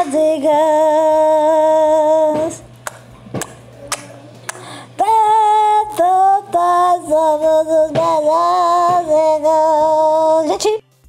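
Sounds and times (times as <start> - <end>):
woman singing: 0.0 - 2.7, 5.0 - 10.8.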